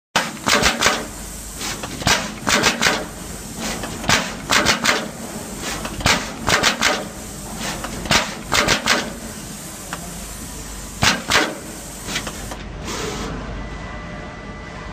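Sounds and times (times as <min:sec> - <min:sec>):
machine clacking: 0:00.2 - 0:01.1, 0:01.8 - 0:03.2, 0:03.8 - 0:05.2, 0:05.8 - 0:07.2, 0:07.8 - 0:09.2, 0:11.0 - 0:12.6
steady machine hiss: 0:00.2 - 0:13.4.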